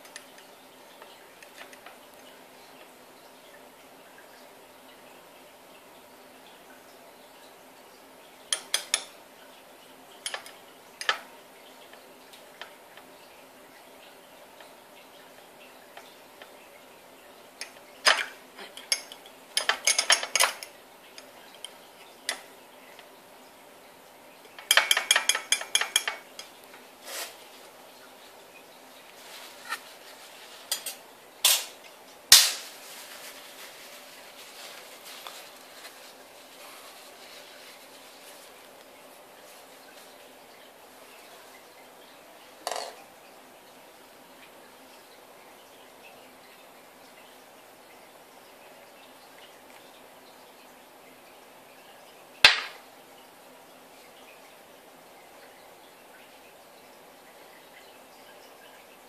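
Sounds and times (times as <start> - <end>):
tissue rustling: 27.0 - 27.8, 29.1 - 31.0, 32.6 - 40.2.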